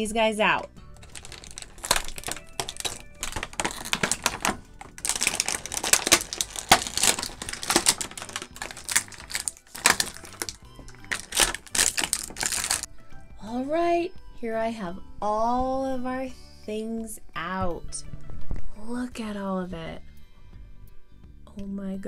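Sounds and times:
plastic packaging crinkling: 1.0s - 12.9s.

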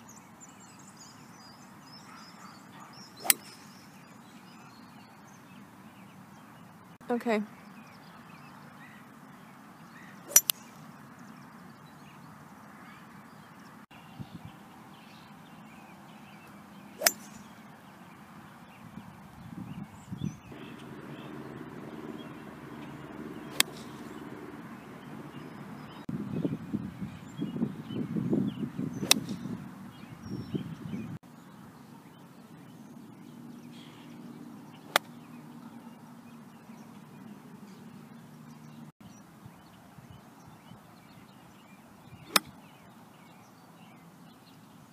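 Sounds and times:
golf club striking ball: 3.2s - 3.8s, 10.3s - 10.7s, 17.0s - 17.5s, 20.6s - 24.2s, 29.0s - 29.6s, 34.8s - 35.1s, 42.3s - 42.5s
low rumbling noise: 20.5s - 26.9s.

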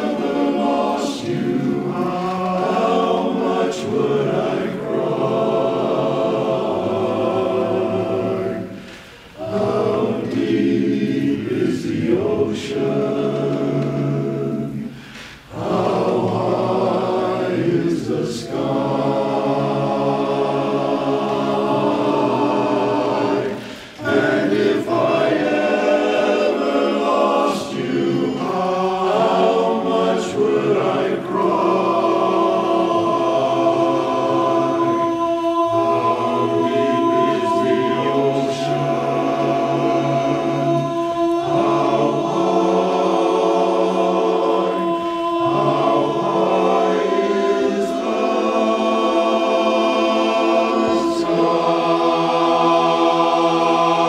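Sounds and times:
men's chorus singing a cappella: 0.0s - 54.0s.

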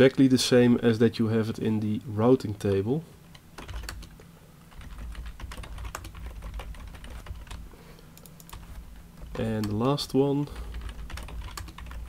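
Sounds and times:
low steady hum: 0.0s - 12.0s
keyboard typing: 3.6s - 7.6s, 8.2s - 12.0s.

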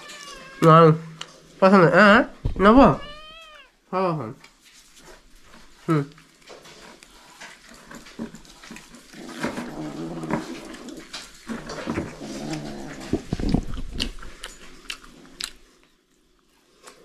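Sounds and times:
puppies growling: 6.6s - 15.9s.

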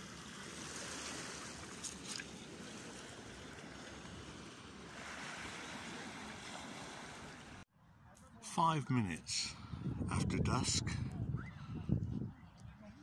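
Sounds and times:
small waves washing ashore: 0.0s - 7.6s
light wind: 0.0s - 13.0s.

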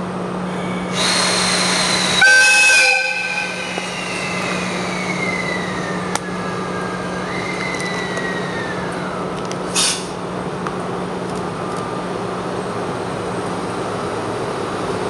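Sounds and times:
locomotive air whistle blast: 0.5s - 8.9s.

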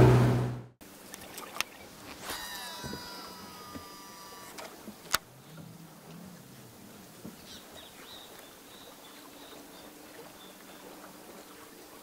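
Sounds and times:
high chirping animal call: 2.2s - 4.6s.

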